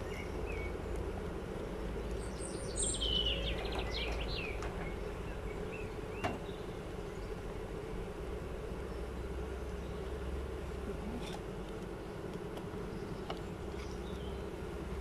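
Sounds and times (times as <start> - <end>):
honeybees humming: 0.0 - 15.0
songbird twittering: 2.2 - 7.4.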